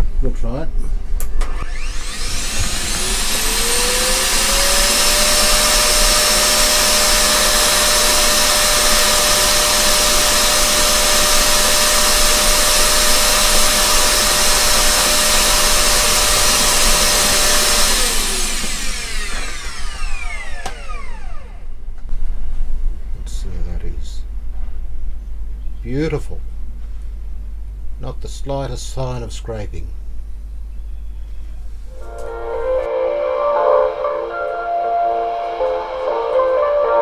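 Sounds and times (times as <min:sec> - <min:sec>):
vacuum cleaner motor whining: 0:01.4 - 0:21.9, 0:31.8 - 0:37.0.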